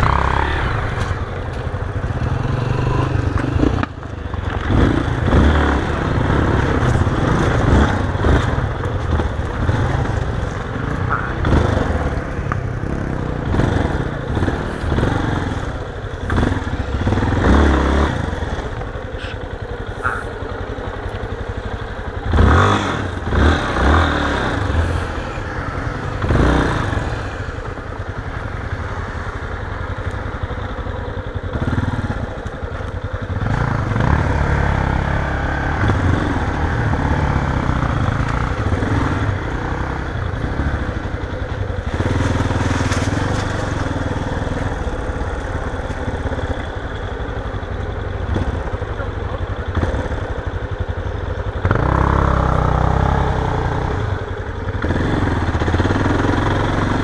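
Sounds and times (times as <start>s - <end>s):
motorcycle engine revving: 0.0s - 57.0s.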